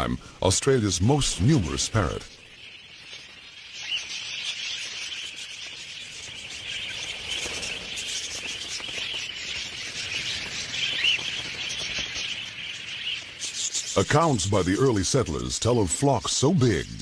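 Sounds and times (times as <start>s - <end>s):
budgerigars chattering: 0.8s - 17.0s.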